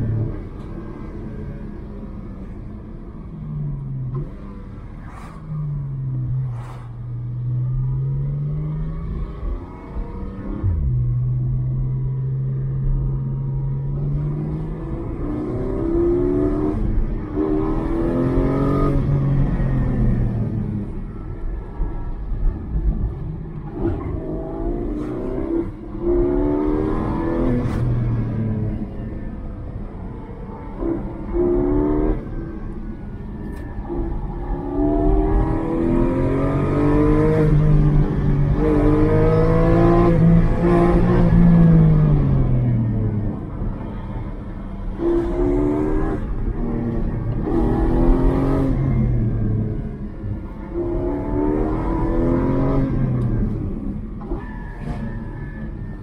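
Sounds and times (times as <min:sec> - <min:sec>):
road and tyre rumble: 0:00.0 - 0:56.0
car engine accelerating hard: 0:30.6 - 0:55.0.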